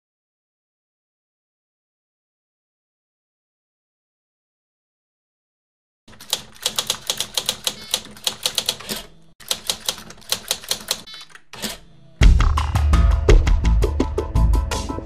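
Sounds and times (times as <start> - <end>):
typewriter keys clacking: 6.1 - 11.8.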